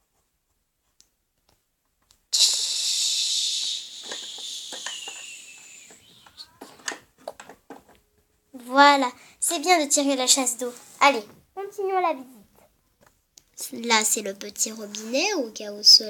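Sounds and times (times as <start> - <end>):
toy toilet flush: 2.4 - 6.0
plastic toys clicking: 2.4 - 7.9.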